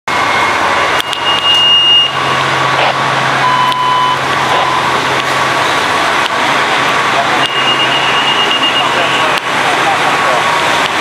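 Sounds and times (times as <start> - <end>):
fire truck engines running: 0.1 - 11.0
short high electronic beeps: 1.0 - 2.4, 3.4 - 5.0, 7.4 - 9.2.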